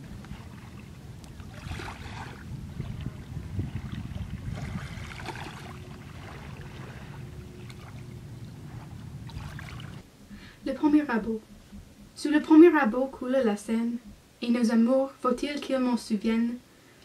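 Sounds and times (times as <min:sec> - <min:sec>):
small waves washing on sand: 0:00.0 - 0:08.1
wind rumble on microphone: 0:00.0 - 0:14.3.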